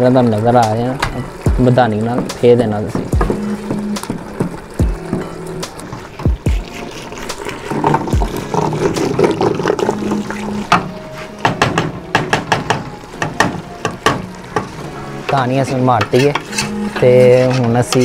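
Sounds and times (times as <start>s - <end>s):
wood clacking against pot: 0.6s - 18.0s
wet sloshing and squelching: 2.2s - 11.4s.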